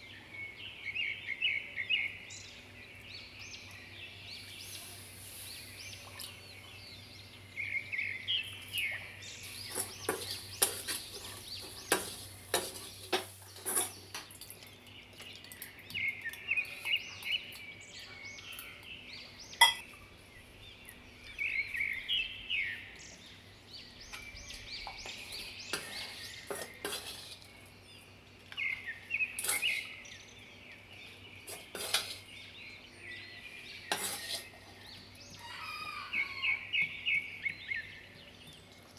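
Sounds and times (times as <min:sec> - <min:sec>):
birds chirping: 0:00.0 - 0:38.9
ladle scraping metal pan: 0:09.7 - 0:14.1, 0:25.1 - 0:27.5, 0:29.4 - 0:29.9, 0:31.5 - 0:32.3, 0:33.9 - 0:34.7.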